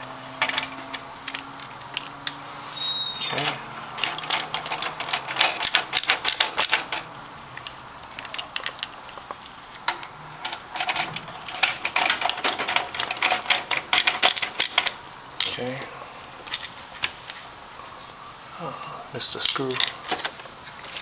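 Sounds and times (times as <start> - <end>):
screwdriver clicking and rattling: 3.9 - 15.5, 16.4 - 17.4.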